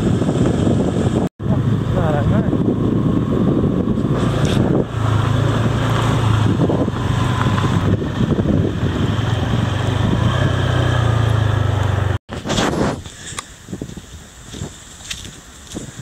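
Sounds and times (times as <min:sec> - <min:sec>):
wind buffeting microphone: 0:00.0 - 0:11.4, 0:12.3 - 0:16.0
motorbike engine running: 0:00.0 - 0:12.2.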